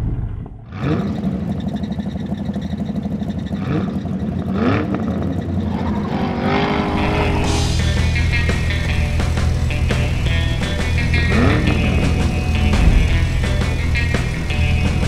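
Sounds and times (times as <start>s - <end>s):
big engine rumbling and revving: 0.0s - 15.0s
music: 5.7s - 15.0s.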